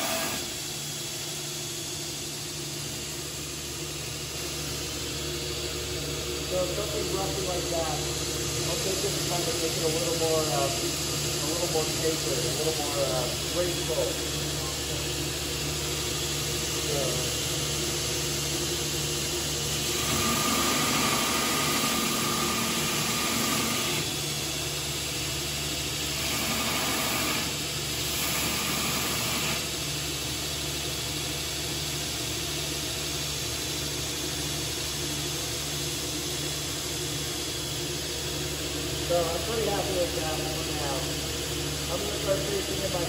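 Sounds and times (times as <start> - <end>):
belt grinder motor hum: 19.8 - 24.1.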